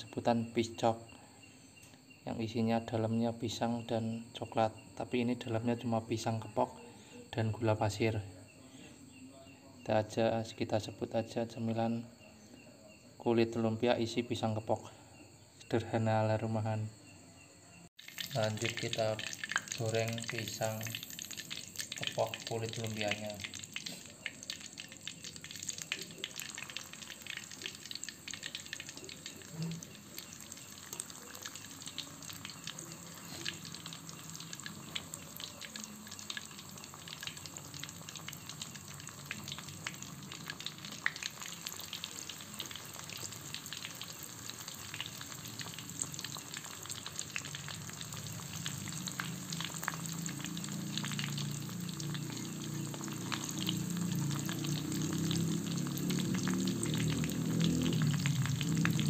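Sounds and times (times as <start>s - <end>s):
oil sizzling in a wok: 17.5s - 59.0s.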